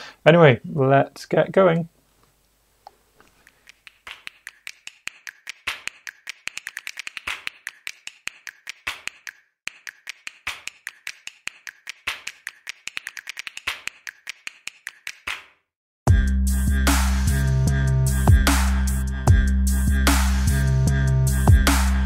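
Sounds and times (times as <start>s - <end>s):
rapid sharp clicks: 3.4s - 15.4s.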